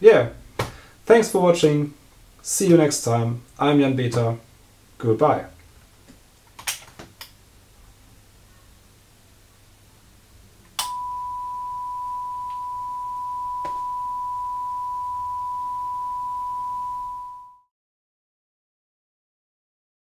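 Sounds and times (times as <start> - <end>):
electronic test tone: 10.8 - 17.6.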